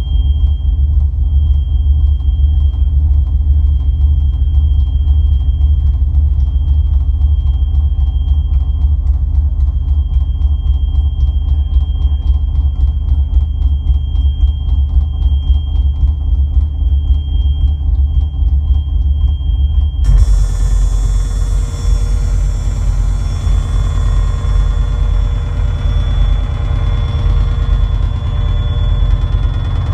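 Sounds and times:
ambient electronic drone music: 0:16.9 - 0:29.9.

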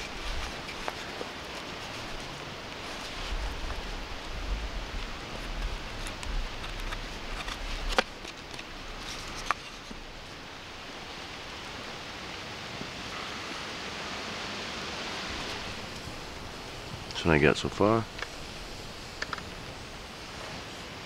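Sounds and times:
steady hiss: 0:00.0 - 0:21.0
knife scraping wood: 0:05.3 - 0:10.0.

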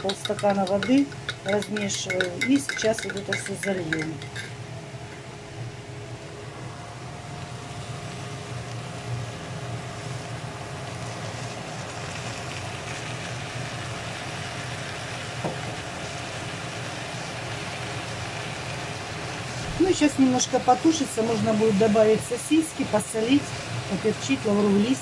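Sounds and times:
cabbage sizzling in a pan: 0:00.0 - 0:04.6, 0:07.0 - 0:25.0
spatula stirring: 0:00.0 - 0:04.6.

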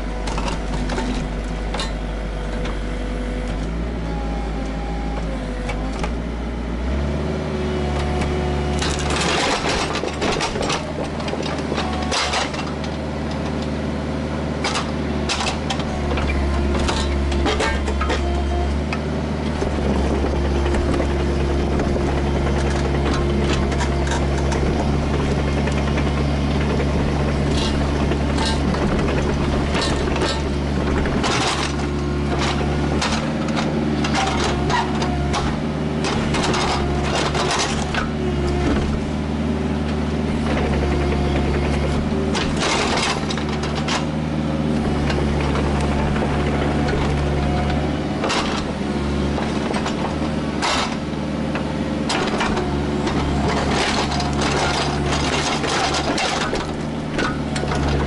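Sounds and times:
excavator diesel engine running: 0:00.0 - 0:58.0
stone and steel knocks and scrapes: 0:14.6 - 0:18.6, 0:19.6 - 0:39.0.

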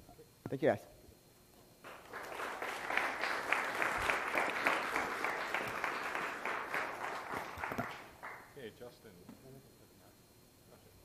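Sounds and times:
audience applauding: 0:01.8 - 0:08.5.

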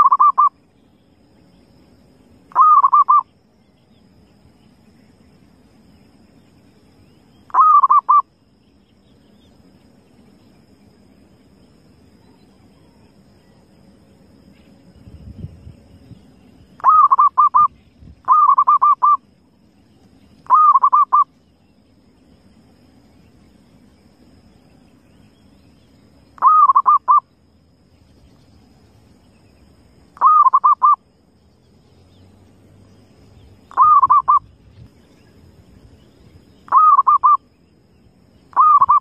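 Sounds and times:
dove cooing: 0:00.0 - 0:00.5, 0:02.5 - 0:03.2, 0:07.5 - 0:08.2, 0:16.8 - 0:17.7, 0:18.3 - 0:19.2, 0:20.5 - 0:21.2, 0:26.4 - 0:27.2, 0:30.2 - 0:31.0, 0:33.7 - 0:34.4, 0:36.7 - 0:37.4, 0:38.5 - 0:39.0.

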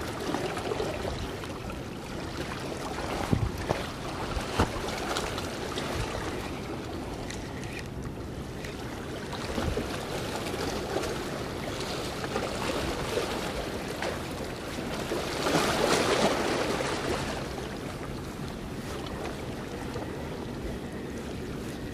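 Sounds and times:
wind on microphone: 0:03.0 - 0:05.0.

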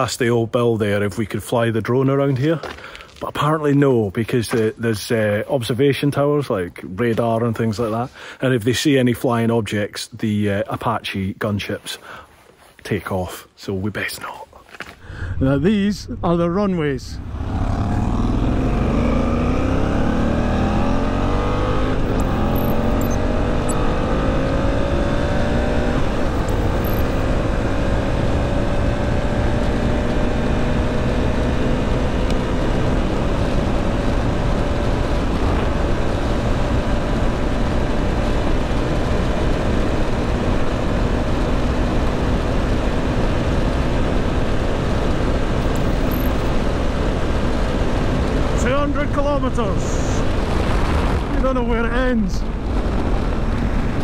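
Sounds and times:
motorcycle engine at full throttle: 0:17.2 - 0:54.0.

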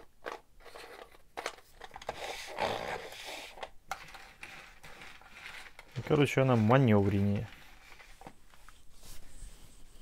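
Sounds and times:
vacuum brush scraping on metal: 0:04.4 - 0:08.2.

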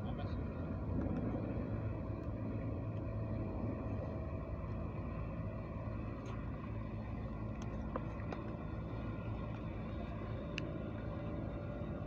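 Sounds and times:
faint hum: 0:00.0 - 0:12.0
low outdoor rumble: 0:00.0 - 0:12.0
light tick: 0:10.4 - 0:10.7.

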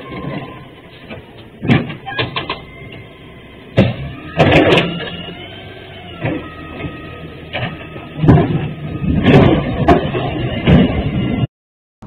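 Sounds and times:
explosion bangs and rumbles: 0:07.6 - 0:11.5.

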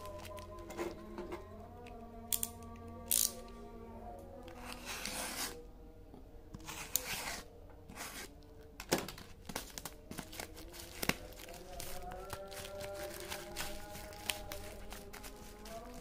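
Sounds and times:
plastic wrapping crinkling: 0:00.0 - 0:00.8, 0:09.0 - 0:16.0
packing tape ripping: 0:09.2 - 0:16.0.

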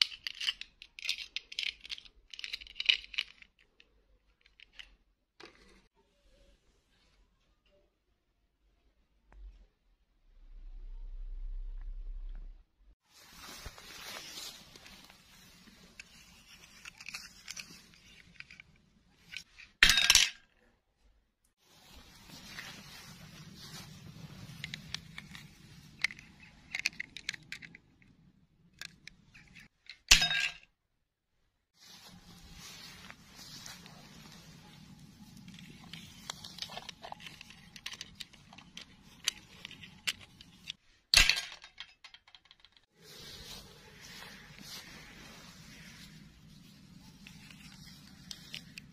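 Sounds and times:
plastic doll clicks and rustling: 0:00.0 - 0:05.8, 0:14.7 - 0:19.8, 0:24.4 - 0:30.1, 0:33.8 - 0:42.9, 0:45.7 - 0:48.9
faint rustling in grass: 0:13.0 - 0:18.2, 0:21.6 - 0:26.0, 0:31.8 - 0:37.7, 0:42.9 - 0:48.9.

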